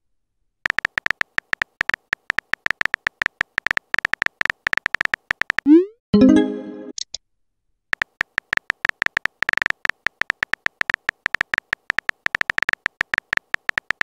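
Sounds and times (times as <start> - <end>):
phone keyboard typing clicks: 0.6 - 5.7, 7.9 - 14.0.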